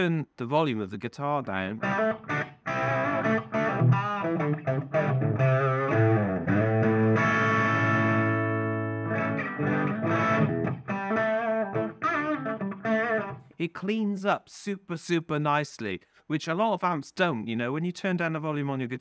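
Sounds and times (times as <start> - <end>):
electric guitar chord ringing: 1.8 - 13.4
distorted electric guitar notes: 1.8 - 13.5.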